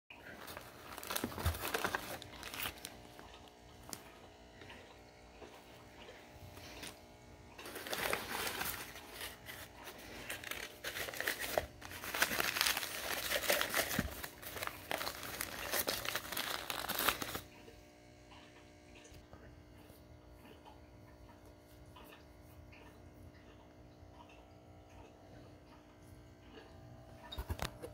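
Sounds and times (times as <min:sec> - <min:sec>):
paper and plastic bags crinkling: 0:00.2 - 0:04.1, 0:07.6 - 0:17.5.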